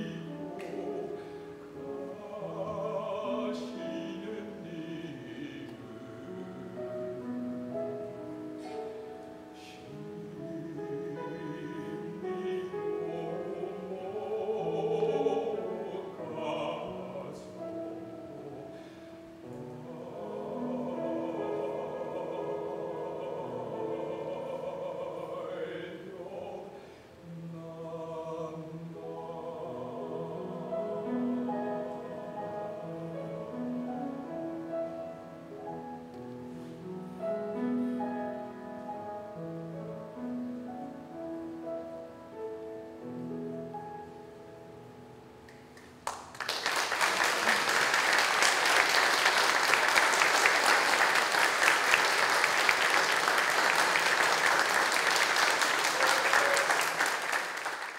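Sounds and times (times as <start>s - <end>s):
soft grand piano: 0.0s - 57.9s
audience applause: 45.8s - 57.9s.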